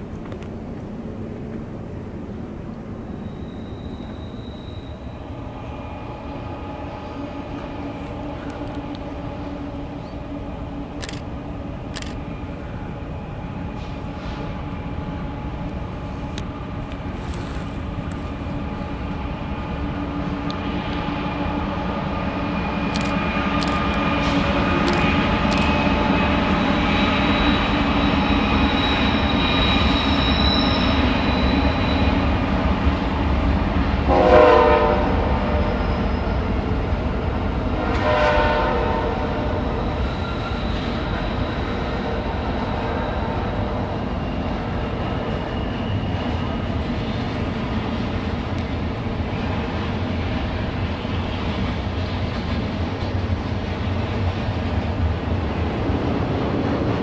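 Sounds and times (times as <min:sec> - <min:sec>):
freight train passing: 0:00.0 - 0:57.0
locomotive horn blasts: 0:34.1 - 0:35.9, 0:37.8 - 0:39.8.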